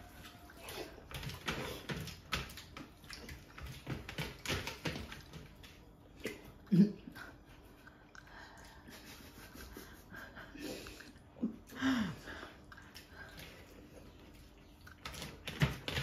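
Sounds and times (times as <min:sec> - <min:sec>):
breathing and sniffling: 0:07.2 - 0:13.8
chewing: 0:12.6 - 0:15.5.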